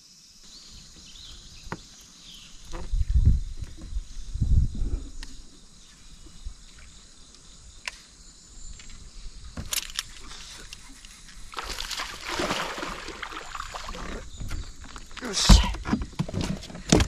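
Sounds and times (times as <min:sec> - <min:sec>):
splashing rush of water: 0:11.6 - 0:14.2.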